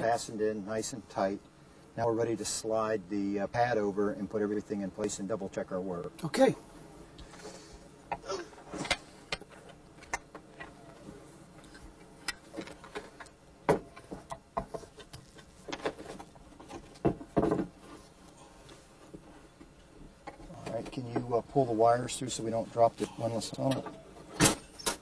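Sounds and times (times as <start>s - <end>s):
windlass knocks and clunks: 12.3s - 18.0s.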